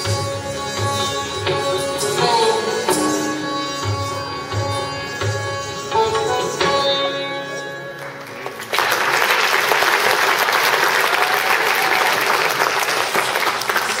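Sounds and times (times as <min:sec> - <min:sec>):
audience applause: 0:08.0 - 0:14.0.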